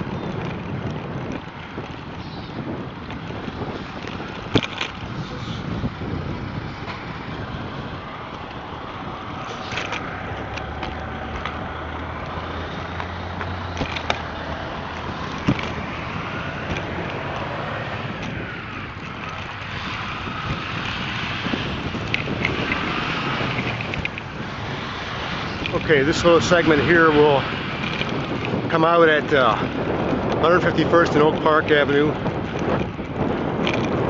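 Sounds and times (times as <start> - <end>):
bicycle wind and road noise: 0.0 - 34.0
bike rattling clicks: 0.0 - 34.0.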